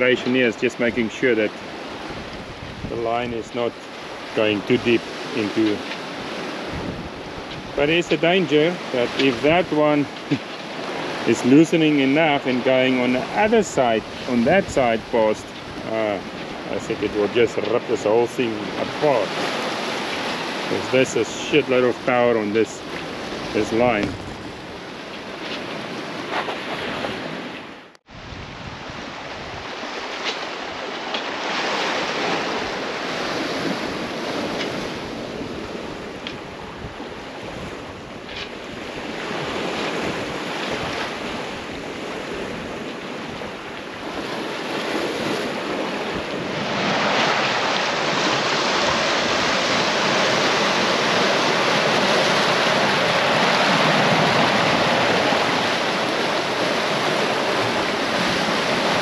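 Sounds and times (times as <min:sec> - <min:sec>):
sea water rushing and splashing: 0:00.0 - 0:59.0
wind buffeting the microphone: 0:01.6 - 0:09.6, 0:22.8 - 0:27.4, 0:28.1 - 0:59.0.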